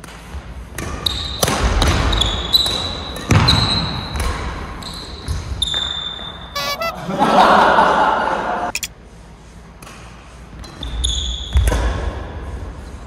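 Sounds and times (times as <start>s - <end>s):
shoes squeaking on court: 4.8s - 7.0s, 8.7s - 8.9s.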